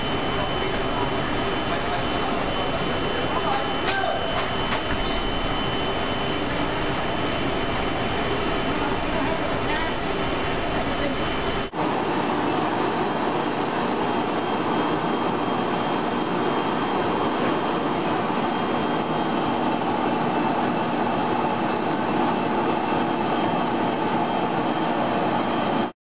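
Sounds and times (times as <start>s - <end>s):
machine running with mechanical rush: 0.0s - 11.8s.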